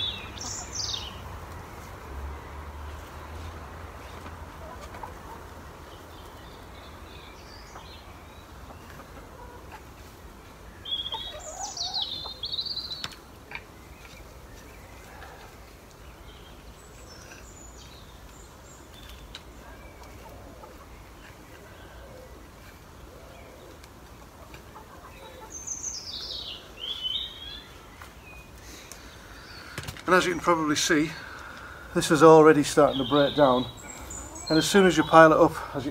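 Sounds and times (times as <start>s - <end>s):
songbird singing: 0.0s - 35.9s
garden fork scraping straw: 16.7s - 23.9s.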